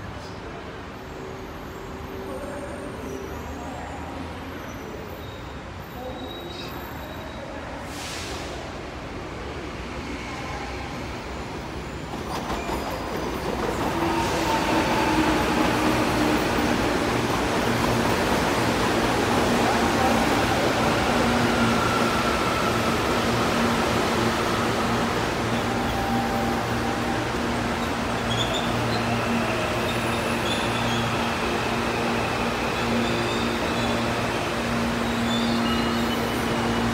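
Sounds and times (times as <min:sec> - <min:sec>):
electric train rumbling past: 0:08.4 - 0:36.9.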